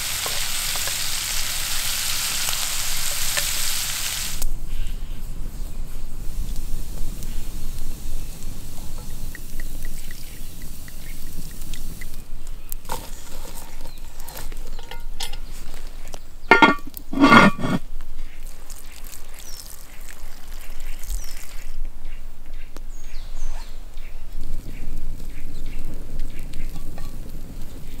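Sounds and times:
campfire burning: 0.0s - 21.9s, 24.2s - 28.0s
water poured into hot pot: 7.6s - 12.2s, 18.4s - 21.8s.

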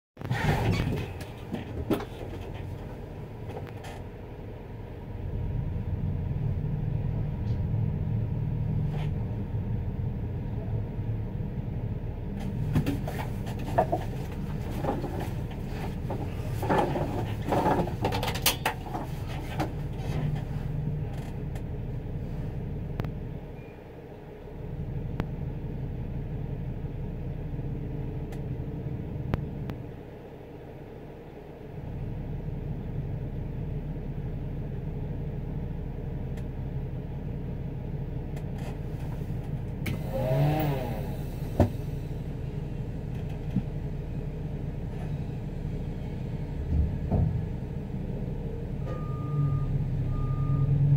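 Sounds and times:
diesel engine idling drone: 0.3s - 18.2s, 18.8s - 50.9s
short knocks and rattles: 12.6s - 20.4s.

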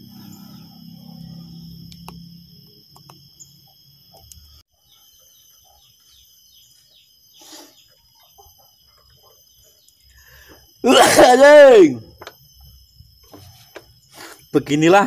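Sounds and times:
birds chirping: 0.0s - 11.0s
low hum: 0.0s - 14.4s.

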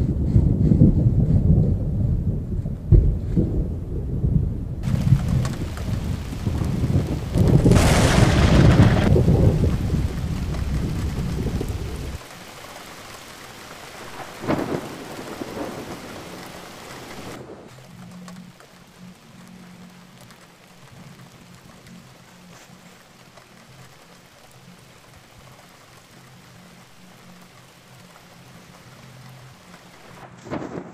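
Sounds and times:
thunder rumbling: 0.0s - 21.5s, 27.8s - 30.9s
steady rain: 0.0s - 30.9s
sharp thunder crack: 2.9s - 12.2s, 14.0s - 17.7s, 30.2s - 30.9s.

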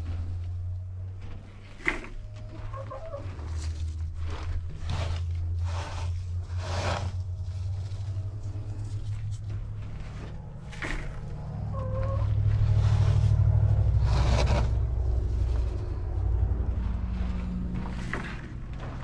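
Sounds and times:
steady low hum: 0.0s - 19.0s
litter scoop scraping granules: 1.6s - 7.8s, 10.0s - 15.1s, 17.8s - 19.0s
hen clucking: 2.4s - 3.3s, 10.8s - 12.5s.

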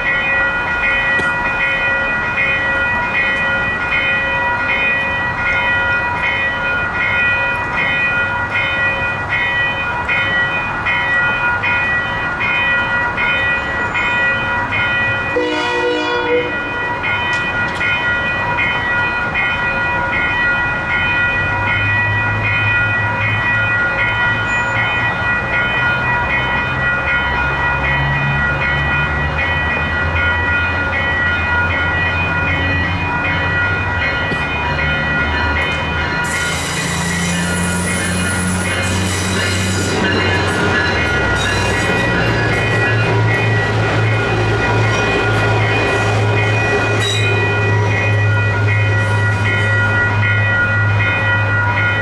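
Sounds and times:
crossing signal bells ringing: 0.0s - 52.0s
train rumble: 0.0s - 52.0s
train horn: 15.3s - 16.8s.

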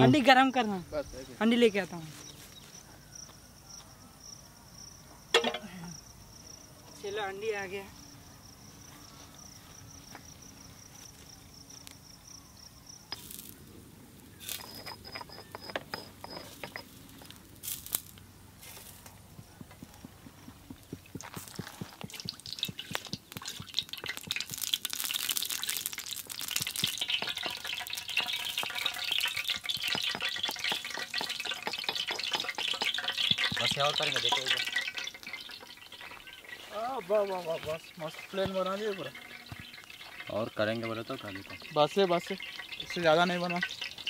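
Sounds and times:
oil crackling and sizzling: 12.9s - 44.0s
liquid pouring into a metal pot: 21.5s - 44.0s.

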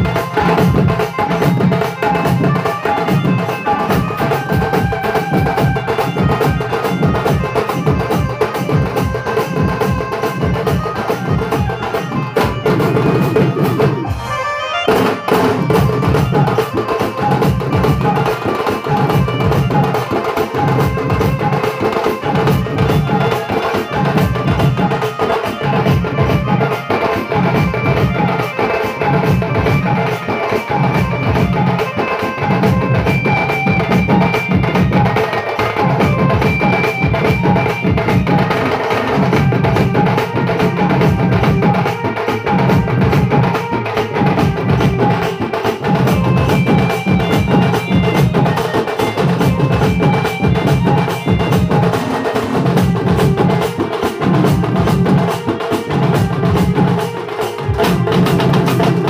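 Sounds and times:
barrel drums playing rhythm: 0.0s - 59.0s
deep drum beats: 32.4s - 59.0s.

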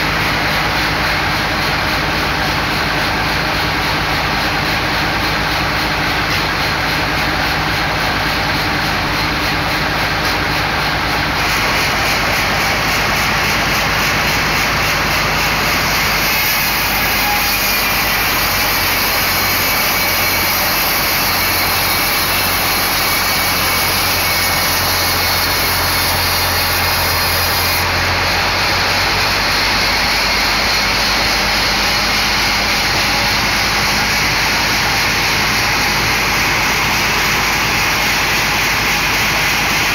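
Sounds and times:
band saw cutting log: 0.0s - 39.9s.

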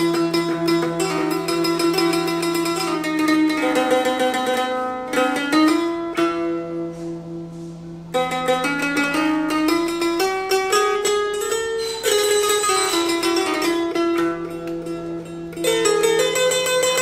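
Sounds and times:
plucked electric lyre: 0.0s - 17.0s.

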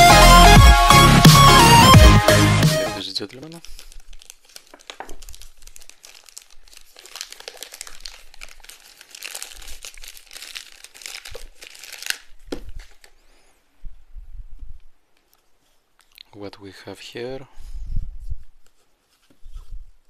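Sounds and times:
packaging crinkling and tearing: 3.0s - 13.2s.

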